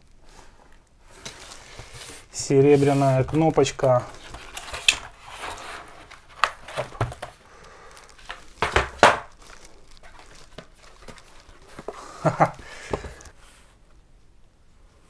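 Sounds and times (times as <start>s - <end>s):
scraping: 1.2s - 7.4s.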